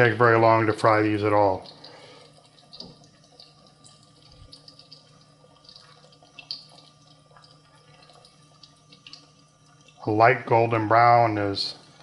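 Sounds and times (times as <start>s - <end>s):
oil bubbling and sizzling: 0.9s - 10.1s.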